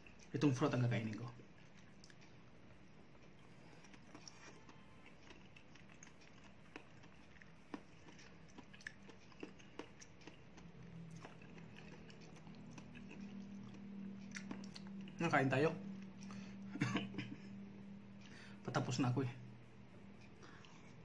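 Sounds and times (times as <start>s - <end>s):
chewing soft fruit: 0.0s - 16.8s
steady low hum: 0.0s - 21.0s.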